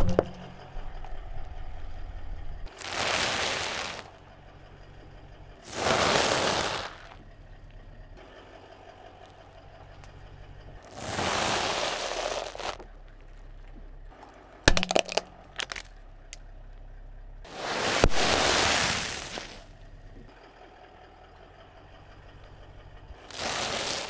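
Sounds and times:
plastic snack bag crunching: 0:02.7 - 0:04.1, 0:10.9 - 0:12.8, 0:14.7 - 0:15.9, 0:23.3 - 0:24.0
tyre crushing dry food: 0:02.7 - 0:04.1, 0:05.7 - 0:07.2, 0:10.9 - 0:12.8, 0:14.7 - 0:15.9, 0:17.6 - 0:19.6, 0:23.3 - 0:24.0
sharp cracks: 0:02.7 - 0:04.2, 0:05.7 - 0:07.2, 0:14.7 - 0:16.4, 0:23.3 - 0:24.0.

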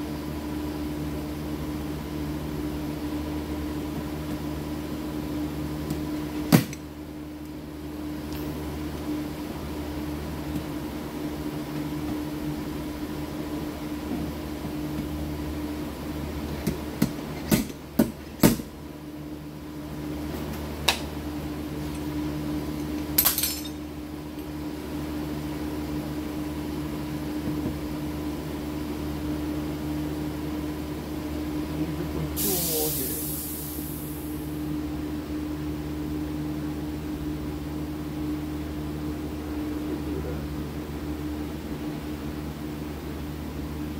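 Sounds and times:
steady machine hum: 0:00.0 - 0:43.9
metallic clinks and knocks: 0:23.2 - 0:23.8.

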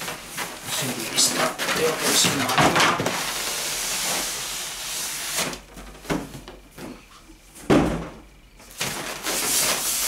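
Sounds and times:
loud thump: 0:07.7 - 0:08.2
foam and cardboard rubbing: 0:08.8 - 0:10.0.

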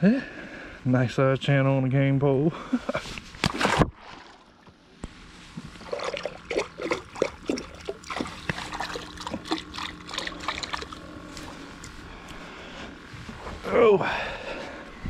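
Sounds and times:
hands splashing in water: 0:05.8 - 0:12.0.

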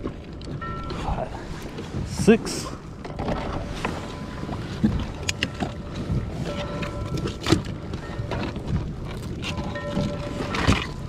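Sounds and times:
wind buffeting microphone: 0:00.0 - 0:11.0
knocks and clicks of gear: 0:03.0 - 0:11.0.

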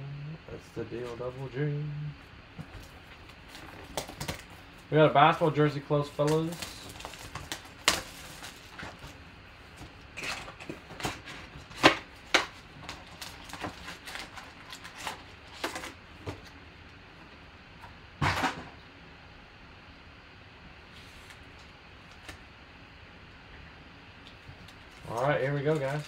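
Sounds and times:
plastic wrap crinkling: 0:06.0 - 0:09.2, 0:11.1 - 0:15.9, 0:24.5 - 0:26.0.

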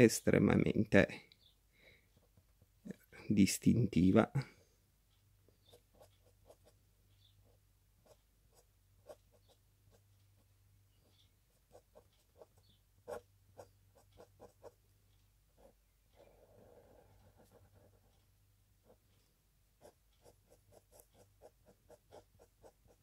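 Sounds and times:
faint low hum: 0:00.0 - 0:23.0
pen scratching on paper: 0:05.6 - 0:06.8, 0:11.1 - 0:14.8, 0:15.6 - 0:18.2, 0:19.8 - 0:23.0.

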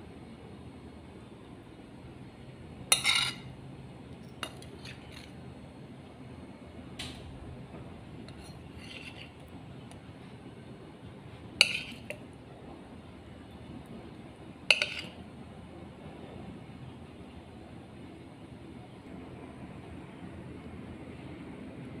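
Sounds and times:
metal spoon clinking on plate: 0:02.9 - 0:03.5, 0:04.2 - 0:05.3, 0:08.3 - 0:09.4, 0:11.6 - 0:12.2, 0:14.7 - 0:15.2.

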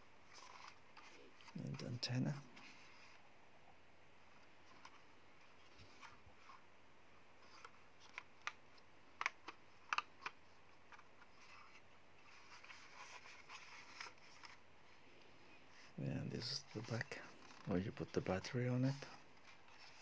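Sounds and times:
controller rustling in hands: 0:00.1 - 0:03.3, 0:04.2 - 0:20.0
plastic controller clicks and taps: 0:09.2 - 0:11.1.

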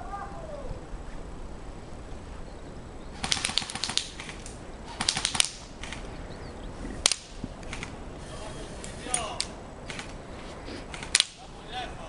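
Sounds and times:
airsoft rifle bursts: 0:03.2 - 0:06.1, 0:07.0 - 0:11.8.

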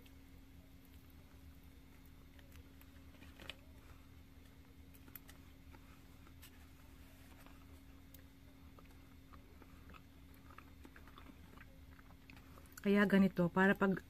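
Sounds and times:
faint eating clicks: 0:07.3 - 0:14.0.

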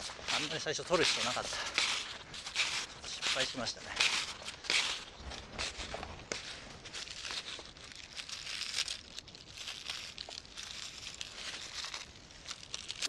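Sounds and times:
snowshoe steps crunching in snow: 0:00.0 - 0:09.0
wood dragged over snow: 0:00.0 - 0:13.0.

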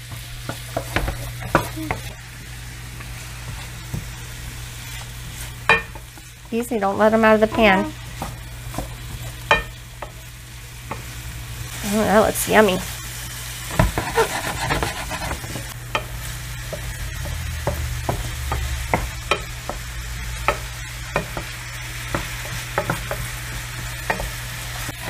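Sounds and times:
vegetables sizzling in hot oil: 0:00.0 - 0:25.0
wooden spoon scraping a pan: 0:13.6 - 0:25.0.

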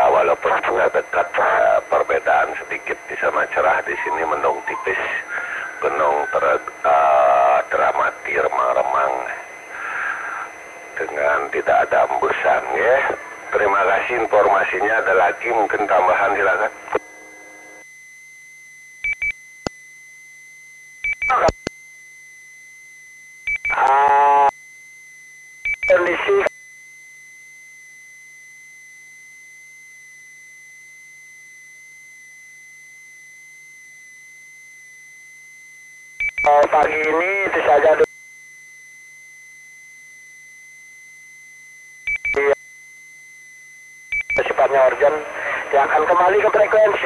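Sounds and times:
garbled radio bursts: 0:00.0 - 0:17.0, 0:21.2 - 0:21.6, 0:23.7 - 0:24.5, 0:25.9 - 0:26.5, 0:36.4 - 0:38.1, 0:42.2 - 0:42.6, 0:44.2 - 0:47.0
faint high tone hum: 0:00.0 - 0:47.0
radio double beeps: 0:00.2 - 0:17.0, 0:21.1 - 0:21.7, 0:25.7 - 0:26.5, 0:36.2 - 0:38.1, 0:42.1 - 0:42.6, 0:44.2 - 0:47.0.

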